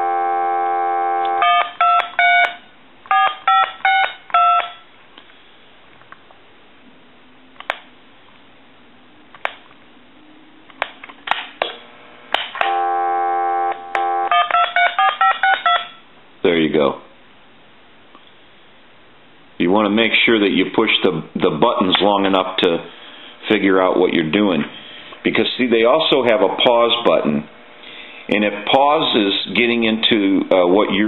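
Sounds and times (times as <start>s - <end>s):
dial tone: 0.0s - 2.1s, 12.6s - 15.9s
touch-tone beeps: 1.3s - 4.8s, 13.6s - 16.0s.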